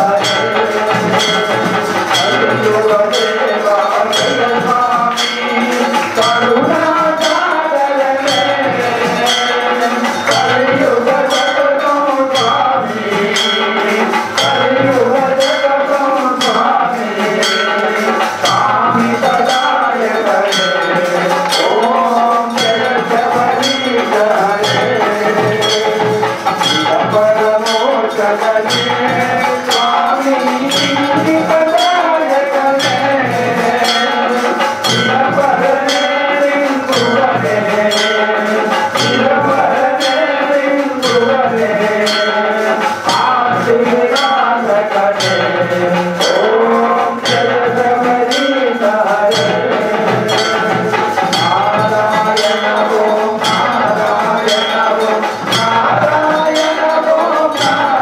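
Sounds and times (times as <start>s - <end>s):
metallic bell strikes: 0.0s - 58.0s
steady ringing tone: 0.0s - 58.0s
wavering devotional melody: 0.0s - 58.0s.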